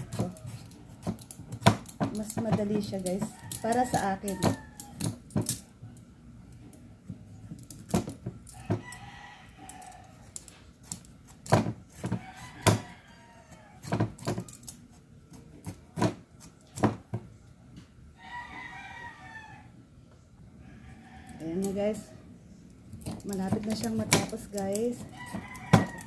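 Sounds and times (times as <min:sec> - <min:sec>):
peeler scraping squash rind: 0:00.0 - 0:05.2, 0:08.5 - 0:16.9, 0:22.9 - 0:26.0.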